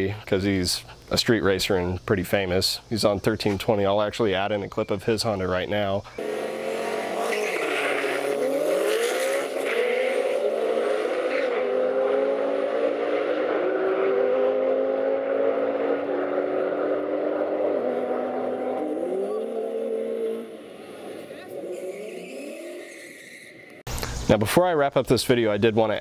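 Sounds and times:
race car engine accelerating: 6.2s - 22.9s.

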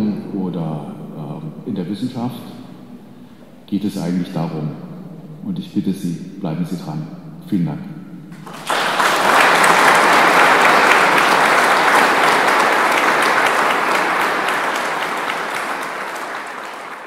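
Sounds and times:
audience applauding: 8.4s - 17.0s.

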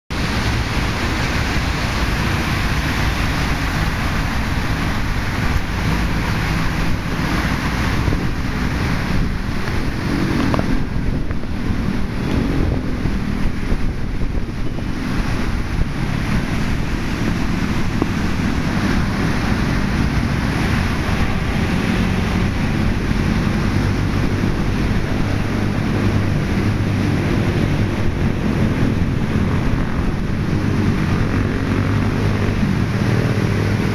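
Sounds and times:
wind buffeting the microphone: 0.1s - 33.9s
waves washing onto a rubble shore: 0.2s - 33.9s.

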